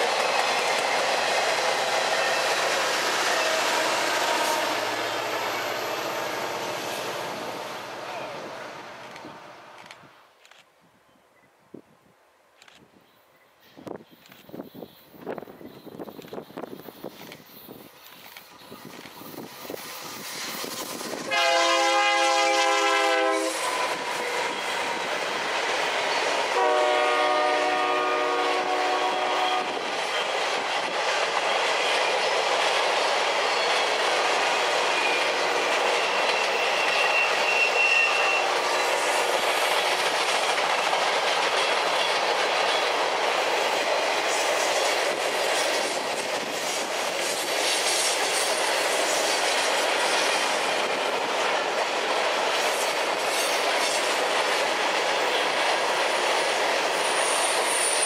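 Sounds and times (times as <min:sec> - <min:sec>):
locomotive horn blasts: 0:21.3 - 0:23.7, 0:26.6 - 0:29.8
faint wheel squeal: 0:36.1 - 0:38.5.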